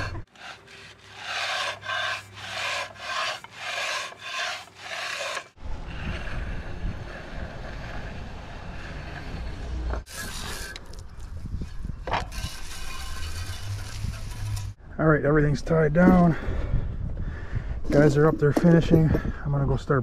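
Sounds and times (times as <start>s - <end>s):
groover scraping wet concrete: 0.0s - 11.0s, 12.1s - 14.8s.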